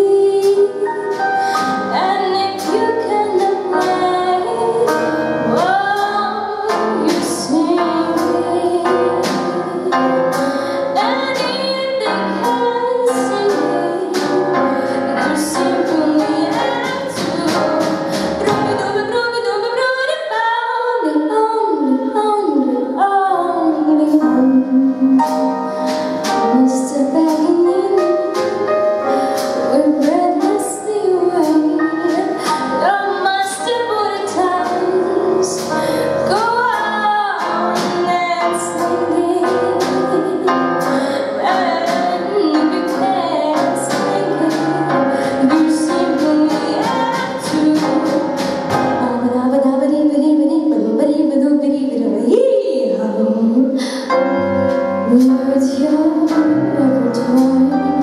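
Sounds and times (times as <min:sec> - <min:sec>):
strings piano and drums: 0:00.0 - 0:20.2, 0:22.1 - 0:51.0, 0:53.7 - 0:58.0
woman singing swing song: 0:00.0 - 0:28.8, 0:29.4 - 0:54.2, 0:55.1 - 0:58.0.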